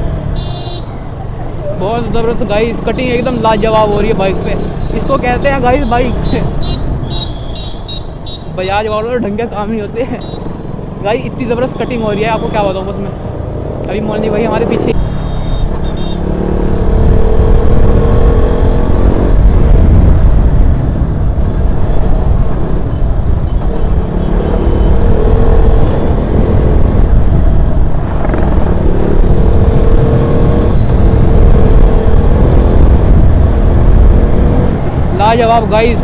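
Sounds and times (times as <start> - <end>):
wind rush on microphone: 15.7 - 36.0.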